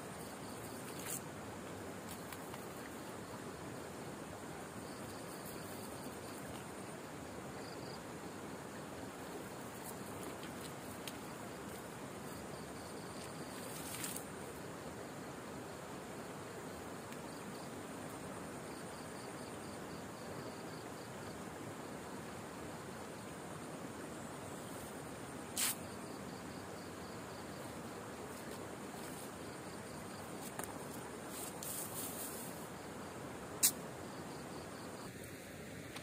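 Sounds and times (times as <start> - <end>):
steady hiss: 0.0 - 36.0
insects trilling: 4.6 - 15.2, 24.0 - 36.0.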